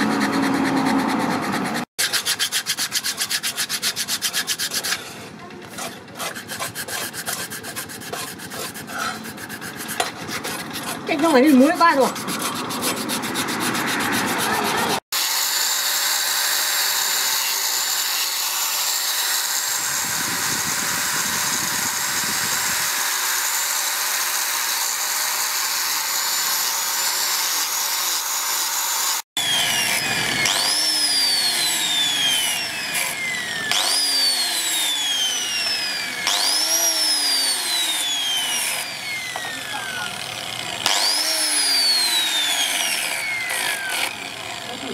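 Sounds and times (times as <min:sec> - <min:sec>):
sandpaper rubbing on wood: 0:00.0 - 0:15.0
angle grinder sanding wood: 0:00.0 - 0:44.9.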